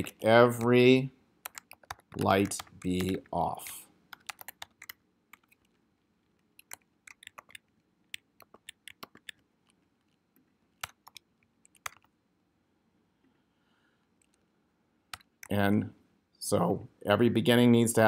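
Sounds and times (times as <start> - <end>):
faint keyboard typing: 0.0 - 12.2, 14.2 - 14.5, 15.1 - 15.7.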